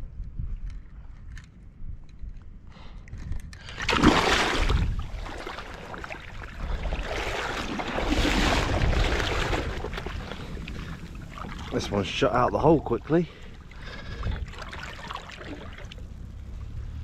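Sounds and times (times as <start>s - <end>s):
wind rumbling on microphone: 0.0s - 17.0s
shallow water sloshing and splashing: 3.7s - 16.4s.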